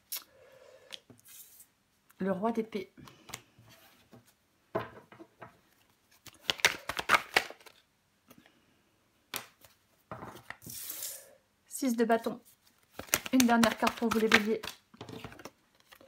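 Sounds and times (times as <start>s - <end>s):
cards being shuffled: 5.7s - 7.8s, 12.4s - 16.0s.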